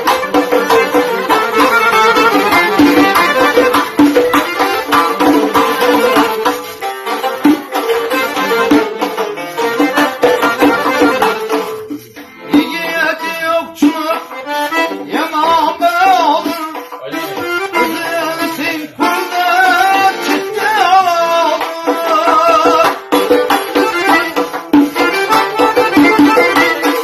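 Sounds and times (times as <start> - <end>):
lute strummed rapidly: 0.0 - 27.0
man singing: 10.9 - 23.4.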